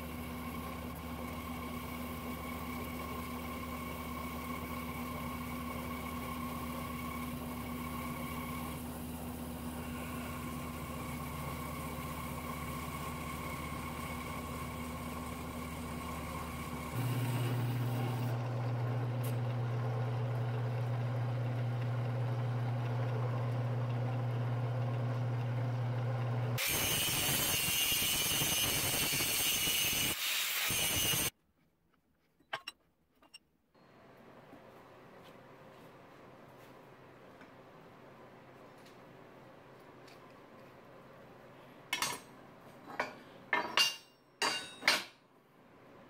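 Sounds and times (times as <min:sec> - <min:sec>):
bandsaw motor hum: 0:00.0 - 0:31.3.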